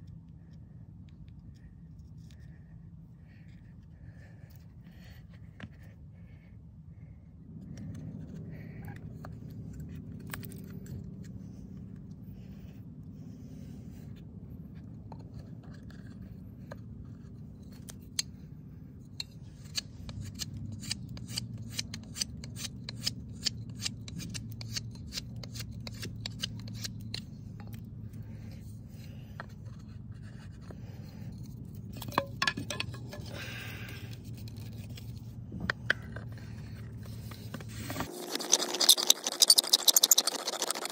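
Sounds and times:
steady low hum: 0.0 - 39.8
knife scraping wood: 14.8 - 18.5, 19.1 - 40.9.

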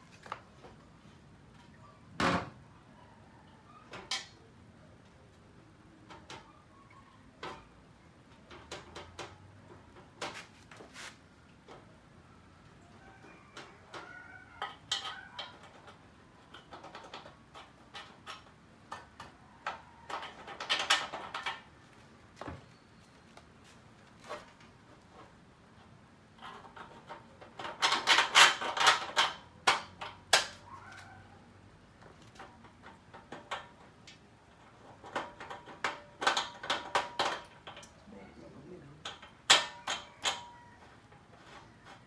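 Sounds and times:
metal parts clinking and rattling: 14.6 - 21.7, 26.4 - 30.6, 34.5 - 38.0.

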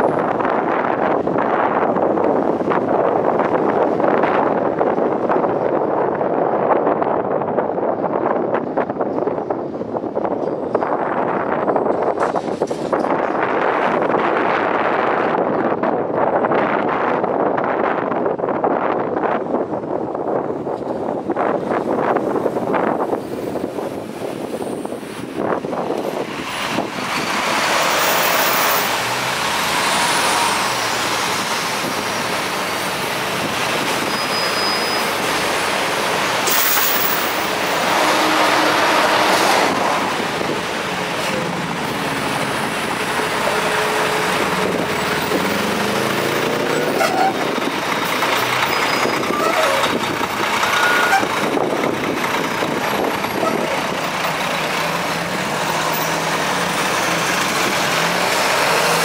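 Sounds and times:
bus and coach engines running: 0.0 - 59.0.

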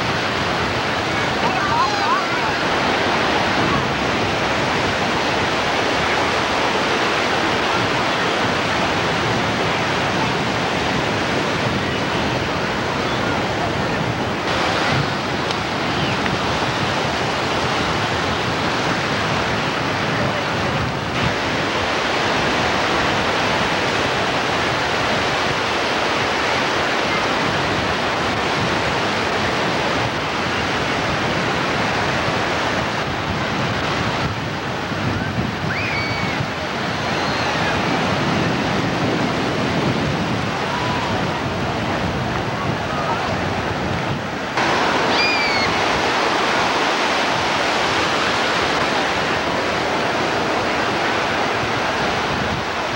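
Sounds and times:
ocean surf breaking: 0.0 - 52.9.

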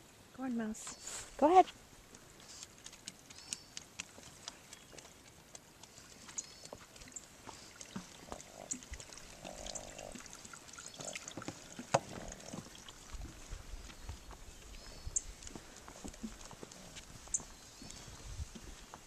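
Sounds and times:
footsteps on wooden boardwalk: 1.6 - 8.6, 11.3 - 19.0
water sloshing under planks: 2.4 - 17.2.

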